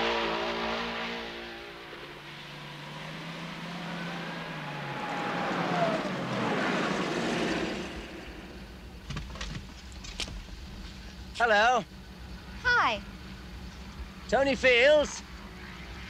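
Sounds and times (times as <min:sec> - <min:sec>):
race car passing: 0:00.0 - 0:08.9
car engine running low: 0:00.0 - 0:16.0.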